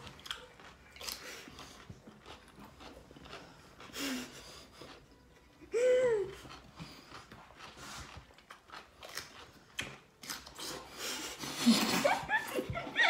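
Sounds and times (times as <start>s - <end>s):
crunching raw cucumber: 8.3s - 10.7s.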